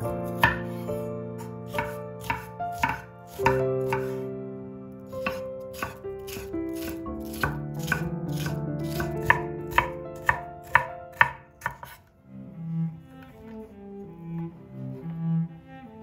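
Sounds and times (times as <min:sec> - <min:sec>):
soft background music: 0:00.0 - 0:16.0
knife tapping on cutting board: 0:01.8 - 0:04.2, 0:05.2 - 0:12.0.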